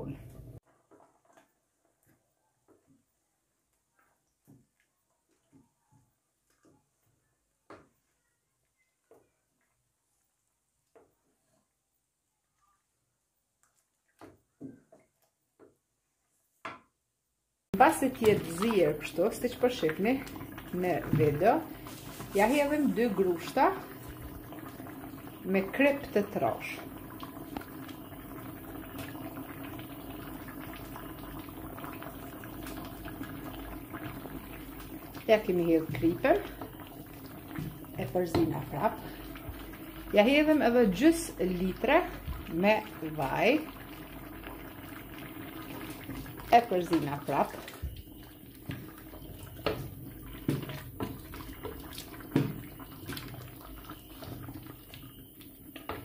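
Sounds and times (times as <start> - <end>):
wooden spoon stirring: 0.2 - 11.8, 13.6 - 16.4, 17.8 - 26.7, 32.1 - 56.0
thick sauce bubbling in a pot: 17.8 - 56.0.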